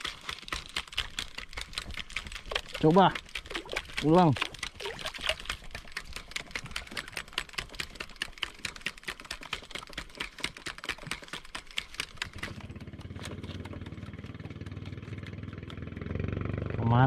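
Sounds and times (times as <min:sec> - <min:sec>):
rapid irregular clicking: 0:00.0 - 0:16.0
boat engine humming: 0:01.0 - 0:08.5, 0:11.6 - 0:17.0.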